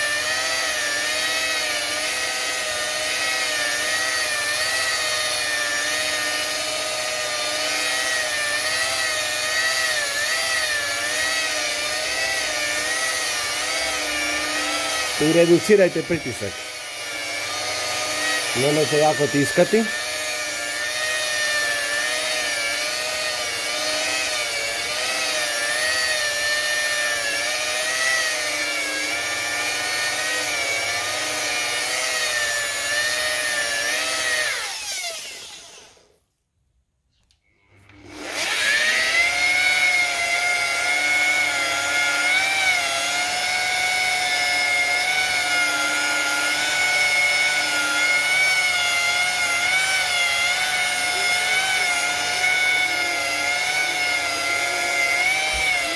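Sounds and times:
rotary polisher motor whine: 0:00.0 - 0:36.2, 0:37.7 - 0:55.9.

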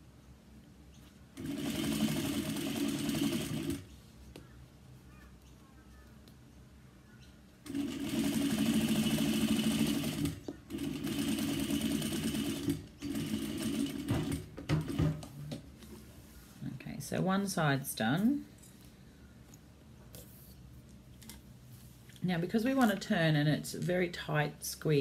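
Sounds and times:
sewing machine stitching: 0:01.4 - 0:03.9, 0:07.6 - 0:15.0.

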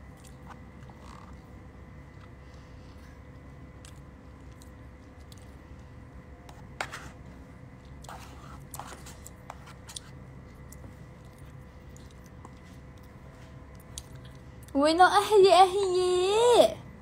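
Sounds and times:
faint chewing: 0:00.0 - 0:05.9, 0:07.8 - 0:14.8.

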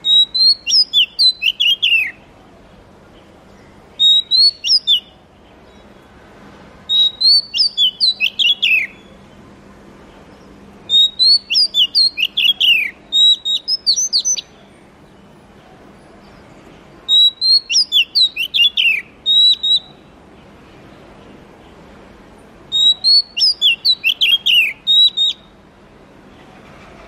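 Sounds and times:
bird singing whistled notes: 0:00.0 - 0:02.2, 0:03.2 - 0:06.0, 0:06.9 - 0:09.2, 0:10.4 - 0:15.3, 0:17.1 - 0:20.2, 0:22.7 - 0:25.6.

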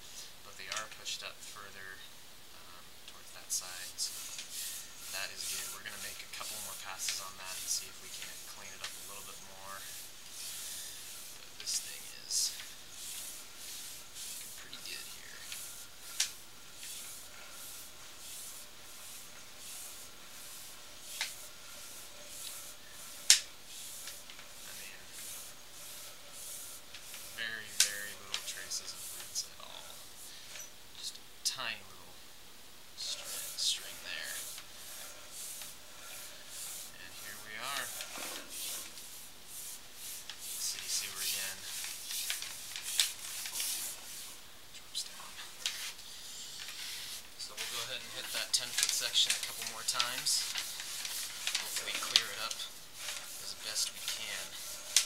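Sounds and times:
cable hissing in drain pipe: 0:03.5 - 0:30.8, 0:33.0 - 0:44.4, 0:45.2 - 0:55.0.

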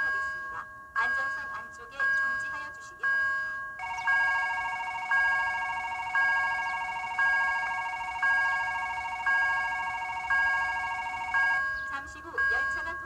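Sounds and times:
electronic bell strikes: 0:00.0 - 0:13.0
fluttering alarm tone: 0:03.8 - 0:13.0.

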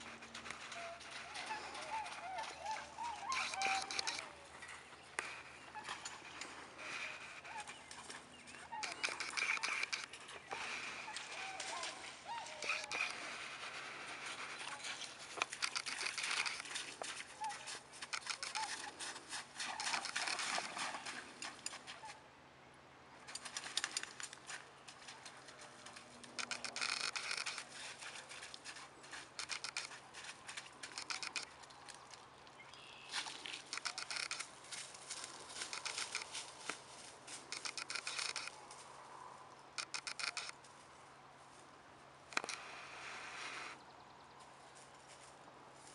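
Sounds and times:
footsteps crunching on icy snow: 0:32.9 - 0:38.9.

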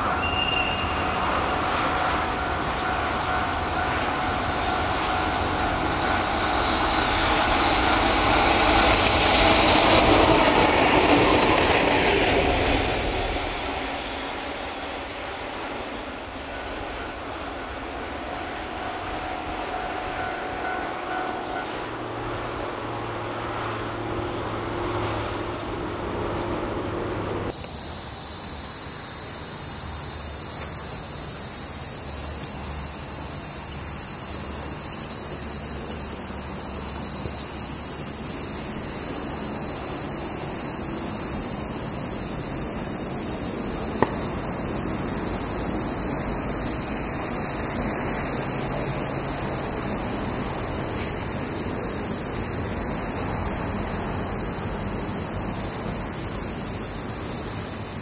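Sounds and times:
cicadas buzzing: 0:00.0 - 0:58.0.

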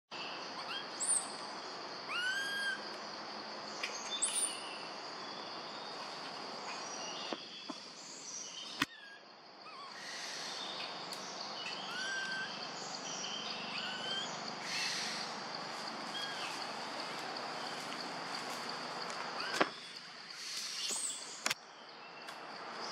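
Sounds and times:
insect drone: 0:00.1 - 0:22.9.

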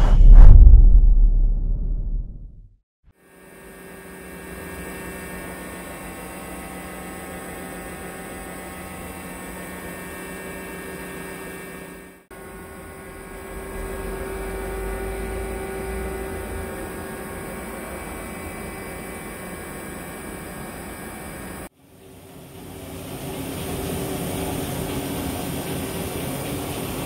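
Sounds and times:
lathe machine hum: 0:03.4 - 0:21.7.

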